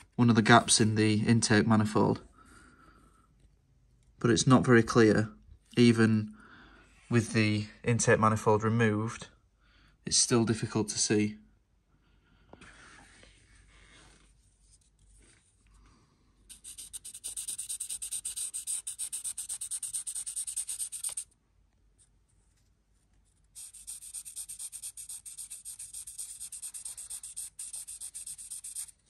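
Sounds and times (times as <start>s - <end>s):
marker scribbling on metal: 16.5s - 21.3s, 23.6s - 29.0s.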